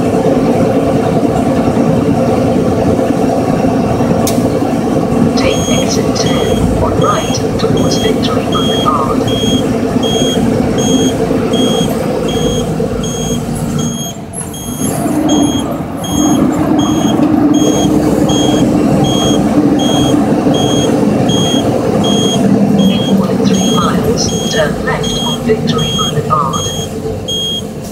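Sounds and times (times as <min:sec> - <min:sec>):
diesel truck engine: 0:00.0 - 0:27.9
road noise: 0:00.0 - 0:27.9
electronic warning beep: 0:05.4 - 0:27.7.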